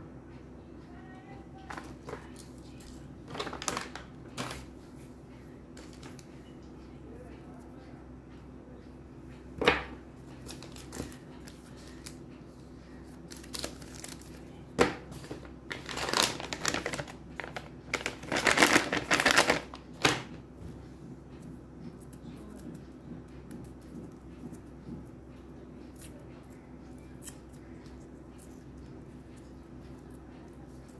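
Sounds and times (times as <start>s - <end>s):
candy wrappers crinkling: 1.7s - 4.7s, 10.4s - 12.2s, 13.2s - 14.5s, 15.2s - 20.3s.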